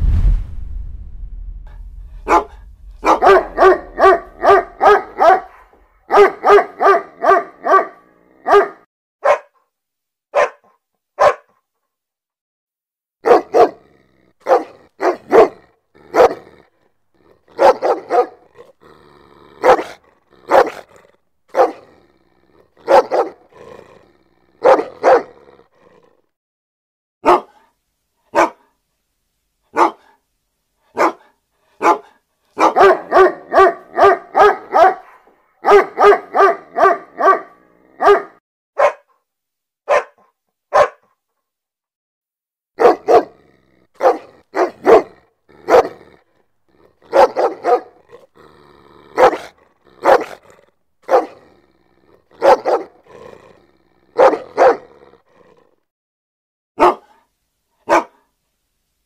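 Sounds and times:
dog barking aggressively: 2.2s - 9.6s, 10.3s - 11.5s, 13.2s - 16.6s, 17.2s - 18.7s, 19.4s - 22.0s, 22.6s - 25.5s, 27.2s - 27.6s, 28.3s - 28.7s, 29.7s - 30.2s, 30.9s - 39.1s, 39.9s - 41.0s, 42.8s - 46.2s, 46.8s - 55.1s, 56.8s - 57.1s, 57.9s - 58.2s.

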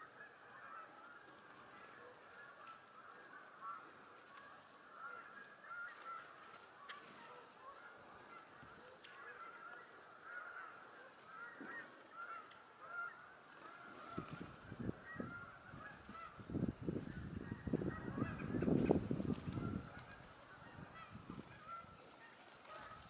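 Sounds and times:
chorus of birds calling: 0.0s - 23.0s.

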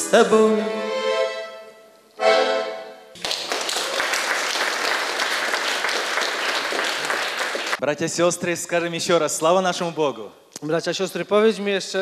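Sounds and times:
button accordion chord: 0.0s - 3.1s
congregation applauding: 3.1s - 7.8s.

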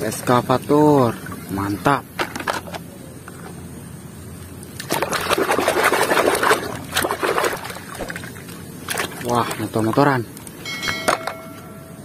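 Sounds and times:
water sloshing in basin: 4.6s - 10.3s.

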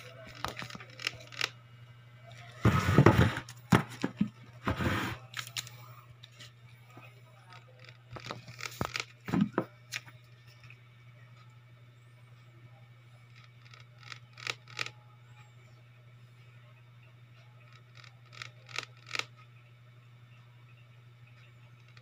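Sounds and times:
steady low hum: 0.0s - 22.0s
rustling and scraping: 2.5s - 7.0s.

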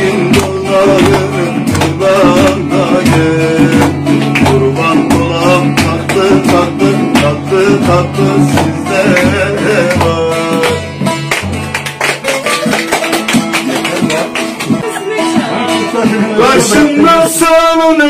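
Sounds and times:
hand claps: 0.0s - 15.0s
long-necked lute played briskly: 8.2s - 16.7s.

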